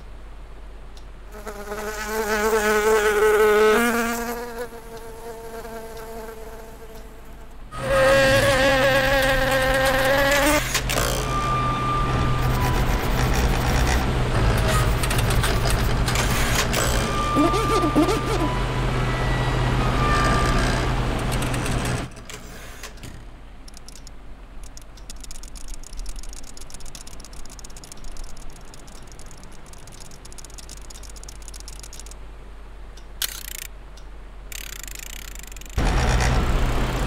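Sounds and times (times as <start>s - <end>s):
electric fan humming: 0.0s - 37.0s
faint ticks and clicks: 21.2s - 32.2s.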